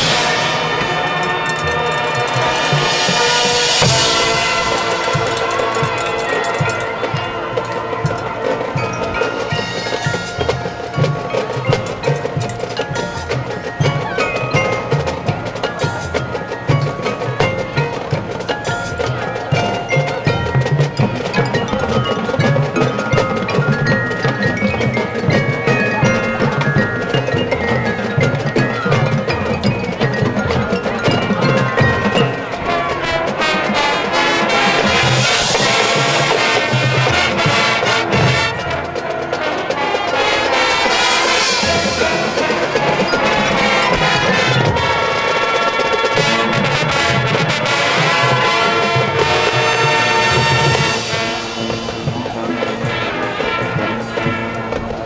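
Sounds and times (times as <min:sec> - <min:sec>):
mallet percussion and chimes: 0:00.0 - 0:55.0
marching band playing: 0:00.0 - 0:55.0.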